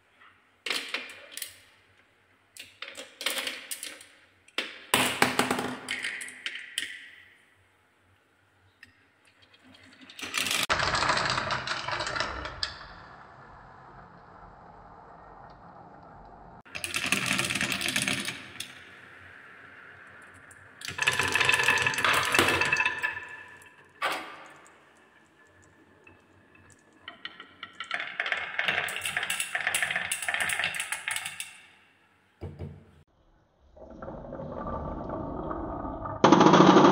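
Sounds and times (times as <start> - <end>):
balls clattering down wooden marble run: 4.7 - 7.0, 10.0 - 12.9, 16.7 - 19.0, 20.8 - 31.7, 36.0 - 36.9.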